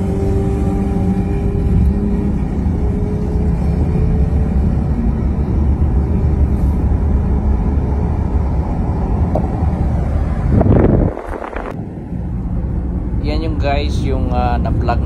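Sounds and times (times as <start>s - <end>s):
car road noise rumble: 0.0s - 15.0s.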